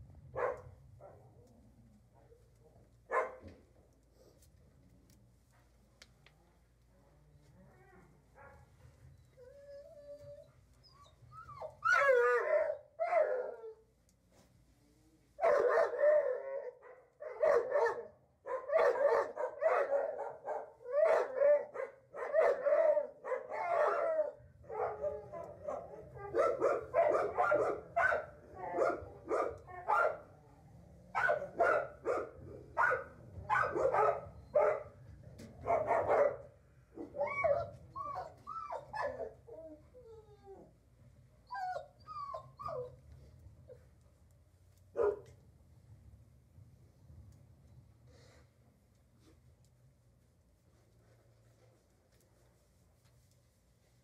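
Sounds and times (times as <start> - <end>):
dog barking: 0.3 - 1.3, 3.1 - 3.5, 15.4 - 30.3, 31.2 - 35.0, 35.6 - 37.5, 45.0 - 45.3.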